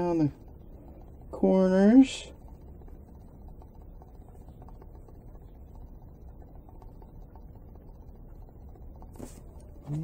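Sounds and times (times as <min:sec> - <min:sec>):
steady low hum: 0:00.0 - 0:10.0
small handling noises: 0:09.0 - 0:10.0.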